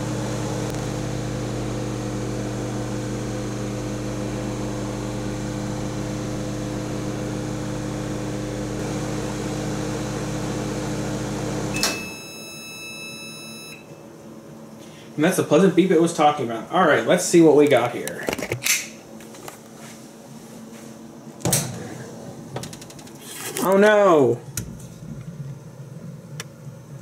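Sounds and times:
microwave oven humming: 0:00.0 - 0:27.0
microwave beep: 0:11.6 - 0:14.1
microwave click: 0:11.7 - 0:13.9.

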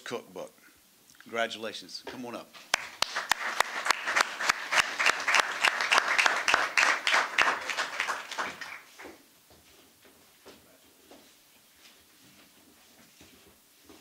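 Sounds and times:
audience applauding: 0:02.7 - 0:09.2
close loud hand claps: 0:02.7 - 0:09.2.

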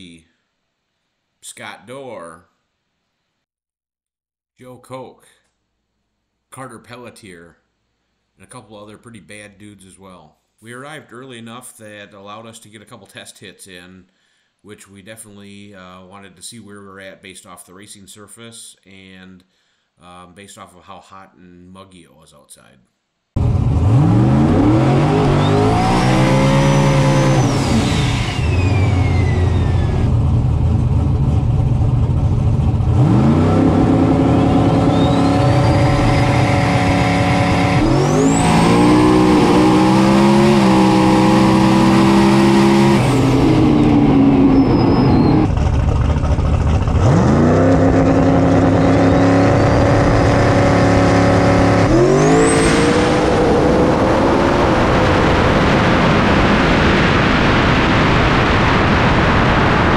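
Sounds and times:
drag car engine revving: 0:23.4 - 0:59.9
turbo whistle: 0:25.1 - 0:30.1, 0:34.3 - 0:38.9, 0:44.4 - 0:45.5.

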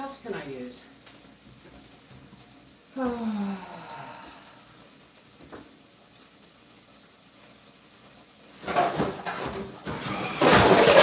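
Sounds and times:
clattering and rustling in cupboard: 0:08.6 - 0:11.0.

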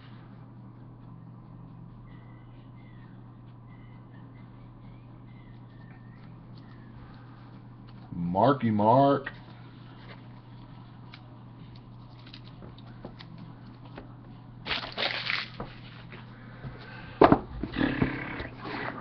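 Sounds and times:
steady low hum: 0:00.0 - 0:19.0
cards and packaging rustling: 0:12.0 - 0:13.4
box knocking on a table: 0:17.2 - 0:17.5.

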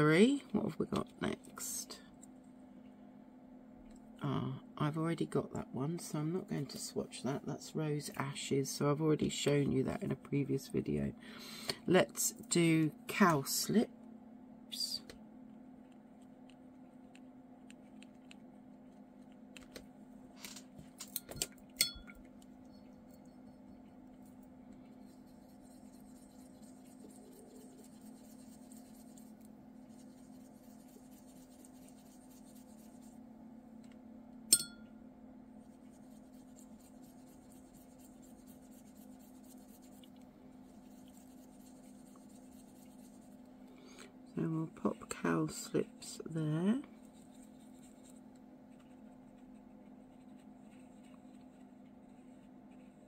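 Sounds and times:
small clicks and taps: 0:19.2 - 0:22.5
paintbrush rubbing on paper: 0:23.0 - 0:33.3, 0:35.5 - 0:43.6, 0:44.4 - 0:53.0.

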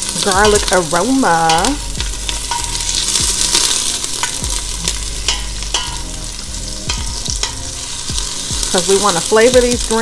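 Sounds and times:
onion and garlic sizzling: 0:00.0 - 0:10.0
utensil scraping and knocking pot: 0:00.2 - 0:06.2, 0:06.8 - 0:09.8.

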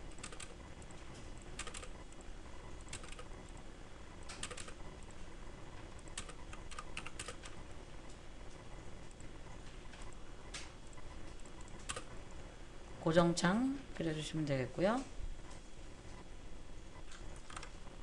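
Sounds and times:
computer keyboard keys clicking: 0:00.0 - 0:00.6, 0:01.6 - 0:02.0, 0:02.8 - 0:03.3, 0:04.2 - 0:04.8, 0:06.1 - 0:07.6, 0:11.3 - 0:12.1, 0:17.1 - 0:17.8.

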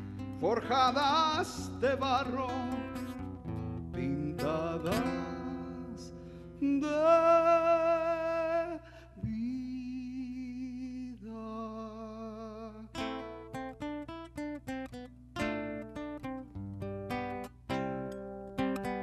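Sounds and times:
man singing with vibrato: 0:00.0 - 0:13.5
classical guitar: 0:00.0 - 0:19.0.

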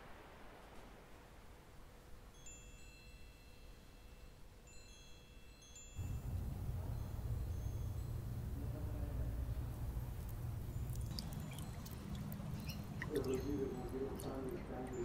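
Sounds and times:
faint hiss: 0:00.0 - 0:15.0
chimes ringing: 0:02.3 - 0:15.0
loud steady low rumble: 0:06.0 - 0:11.1.

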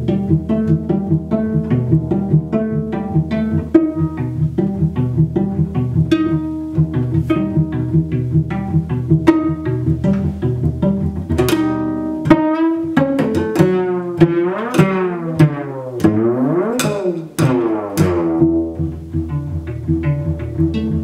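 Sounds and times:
plucked cello notes: 0:00.0 - 0:21.0.

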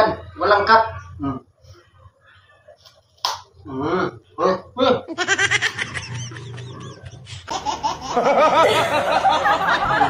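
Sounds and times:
child laughing: 0:05.1 - 0:10.0
fuller laughter: 0:05.1 - 0:10.0.

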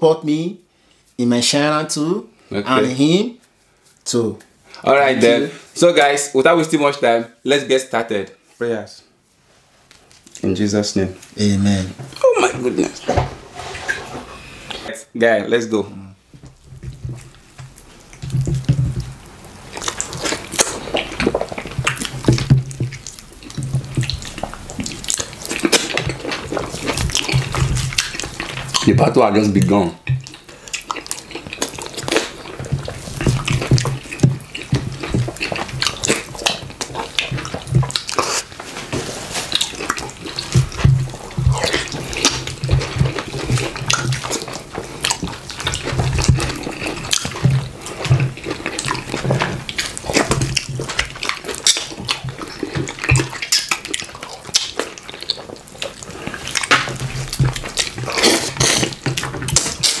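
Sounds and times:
wet chewing and lip smacks: 0:16.5 - 0:29.0, 0:29.6 - 0:38.6, 0:39.5 - 1:00.0.

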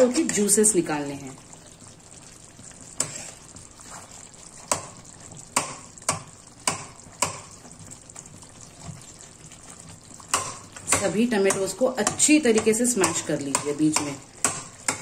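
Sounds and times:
gravy sizzling: 0:00.0 - 0:15.0
metal spatula knocking on pot: 0:04.7 - 0:07.5, 0:10.3 - 0:15.0.

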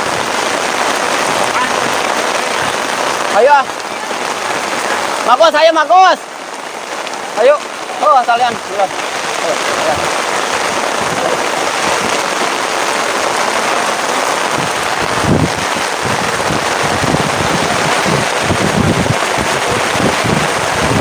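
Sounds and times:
heavy rain pouring: 0:00.0 - 0:21.0
wind buffeting microphone: 0:08.5 - 0:21.0.

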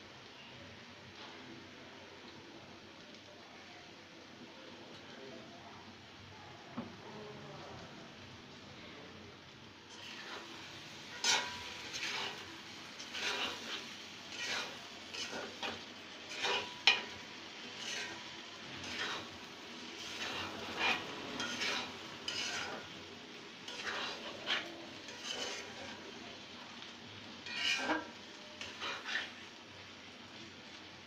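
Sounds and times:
faint sizzle: 0:00.0 - 0:31.0
spatula scraping pot: 0:09.9 - 0:23.0, 0:23.6 - 0:26.0, 0:27.4 - 0:29.4.

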